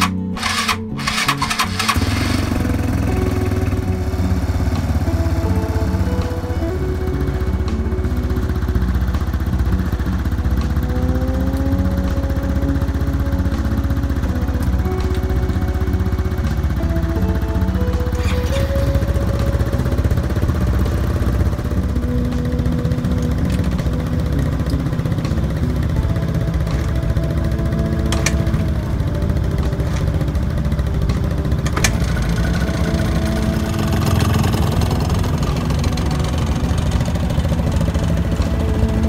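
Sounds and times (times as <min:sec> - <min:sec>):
sharp clicks: 0:00.0 - 0:04.9
scooter engines idling: 0:00.0 - 0:39.0.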